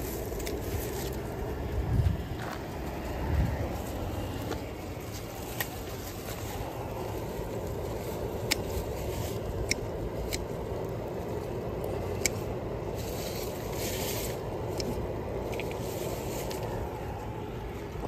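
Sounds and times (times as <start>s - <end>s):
low rustling and rubbing: 12.9s - 14.7s, 15.5s - 17.5s.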